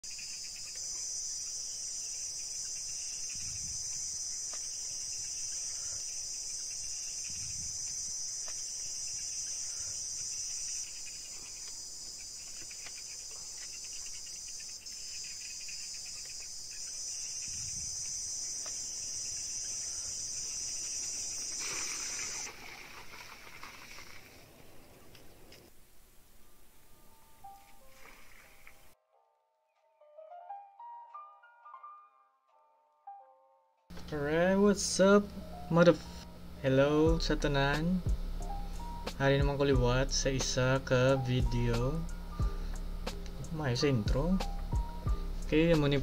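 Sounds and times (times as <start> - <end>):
crickets chirring: 0.0 - 29.0, 33.9 - 46.0
water poured splashing into pool: 21.5 - 24.4.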